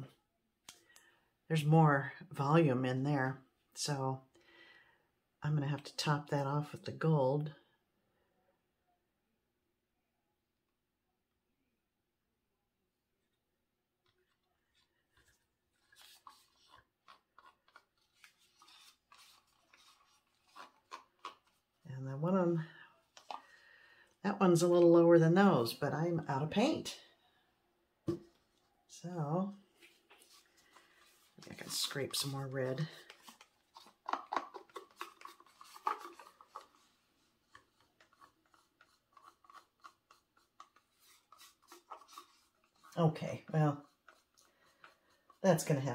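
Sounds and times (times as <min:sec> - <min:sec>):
stick scraping plastic cup: 0:14.1 - 0:21.7, 0:29.9 - 0:45.9.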